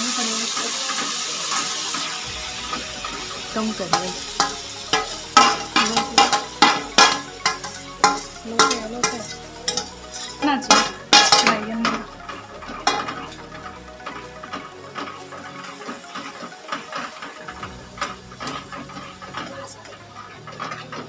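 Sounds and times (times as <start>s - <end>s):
paste sizzling in hot fat: 0.0s - 21.0s
spoon clinking and scraping on plate: 4.2s - 21.0s.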